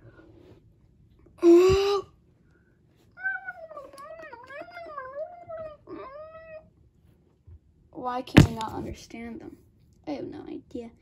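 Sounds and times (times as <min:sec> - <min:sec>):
high voice making cat-like cries: 0:03.2 - 0:06.7
low thump: 0:08.4 - 0:08.9.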